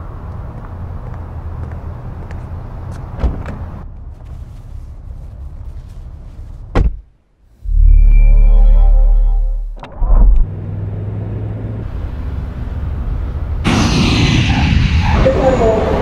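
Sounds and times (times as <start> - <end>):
car door shutting thud: 3.2 - 3.6
loud deep rumble with tones: 7.6 - 16.0.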